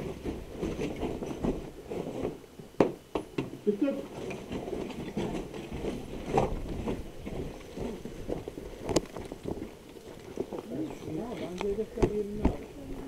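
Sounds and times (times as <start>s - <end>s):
boot footsteps on rubble and concrete: 4.2s - 12.6s.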